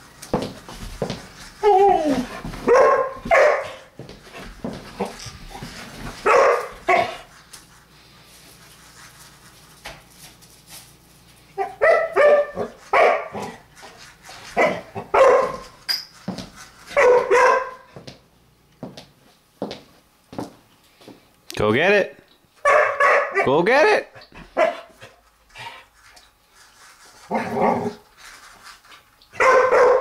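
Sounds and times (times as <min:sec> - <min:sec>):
dog barking: 0:02.6 - 0:03.9, 0:06.2 - 0:07.2, 0:11.6 - 0:13.5, 0:14.6 - 0:15.6, 0:17.0 - 0:17.9, 0:22.6 - 0:23.6, 0:24.5 - 0:25.0, 0:29.4 - 0:30.0.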